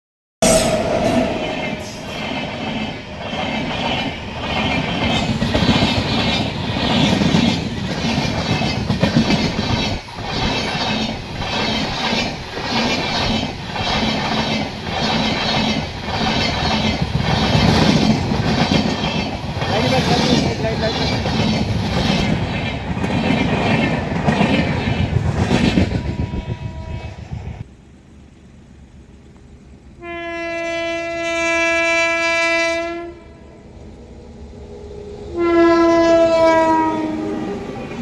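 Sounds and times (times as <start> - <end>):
train wheels rumbling on track: 0.4 - 38.0
clickety-clack of wheels: 2.5 - 26.3.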